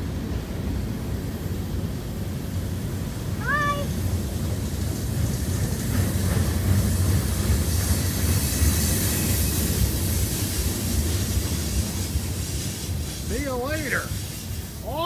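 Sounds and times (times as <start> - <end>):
train wheels rolling on rails: 0.0 - 15.0.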